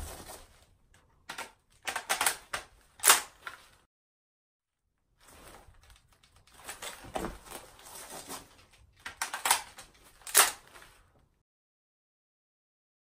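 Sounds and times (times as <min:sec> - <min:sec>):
magazine rattles and clicks: 0:01.2 - 0:03.7, 0:08.6 - 0:10.9
sharp rifle snaps: 0:01.3 - 0:03.4, 0:09.0 - 0:10.6.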